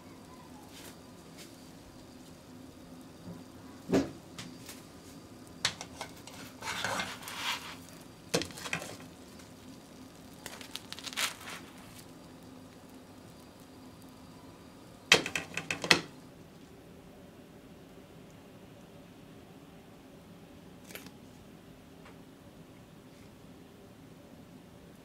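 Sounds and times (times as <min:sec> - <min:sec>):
spatula scraping frying pan: 0:05.7 - 0:09.4
sharp knocks on pan: 0:15.1 - 0:16.1.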